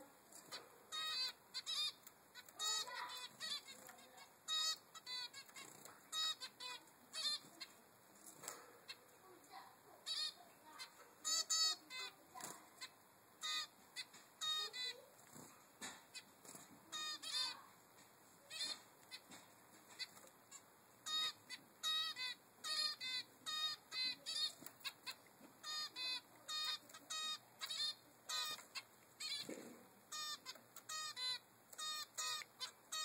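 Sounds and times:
finch fledgling begging calls: 0:00.4 - 0:07.8, 0:10.0 - 0:15.1, 0:15.8 - 0:17.6, 0:18.5 - 0:33.0.

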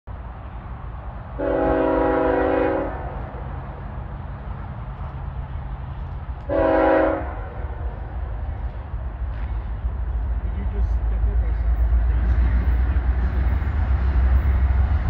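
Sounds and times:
low train rumble: 0:00.1 - 0:15.0
locomotive air horn blasts: 0:01.4 - 0:03.2, 0:06.5 - 0:07.8.

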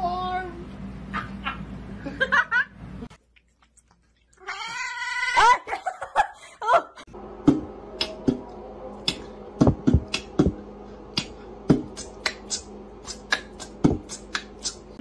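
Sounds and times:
steady low hum: 0:06.2 - 0:15.0.

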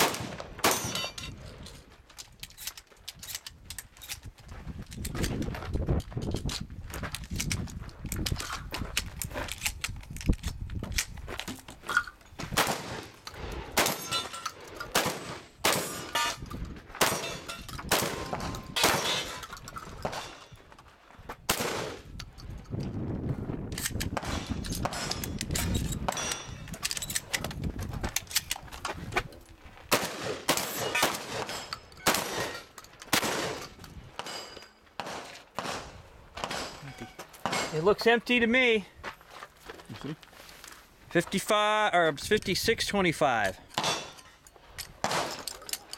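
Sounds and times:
shotgun shots: 0:00.0 - 0:01.0, 0:12.5 - 0:14.3, 0:14.9 - 0:16.3, 0:17.0 - 0:19.4, 0:21.5 - 0:22.1, 0:29.9 - 0:34.4, 0:35.0 - 0:36.8, 0:45.0 - 0:45.4.

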